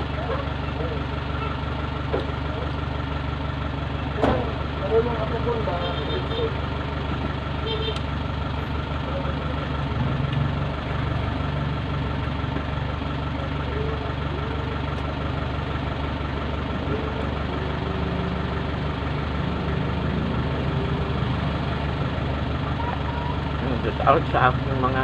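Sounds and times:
low mechanical drone: 6.3s - 25.0s.

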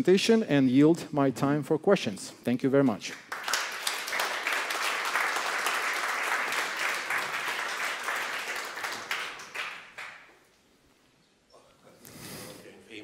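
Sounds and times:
audience applauding: 3.2s - 10.4s.

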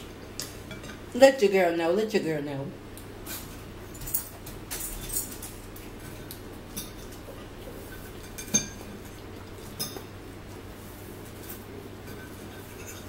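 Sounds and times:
forks scraping on plates: 11.4s - 13.0s.

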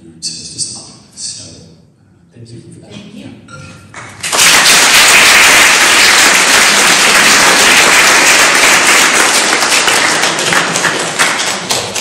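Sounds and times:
audience applauding: 4.0s - 12.0s.

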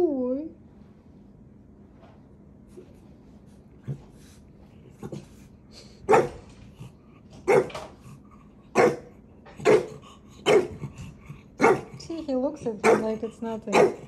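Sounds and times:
small dog barking: 6.1s - 6.4s, 7.4s - 7.8s, 8.7s - 10.8s, 11.6s - 12.0s, 12.8s - 14.0s.

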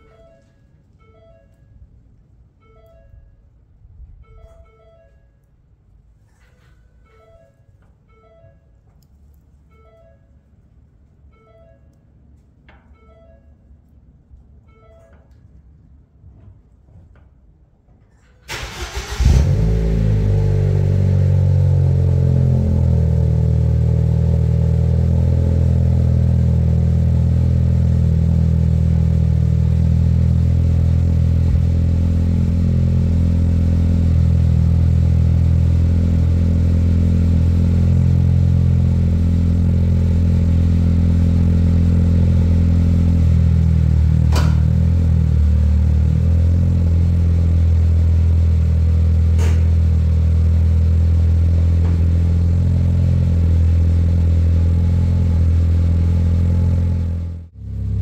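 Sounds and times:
car engine idling: 18.5s - 58.0s.

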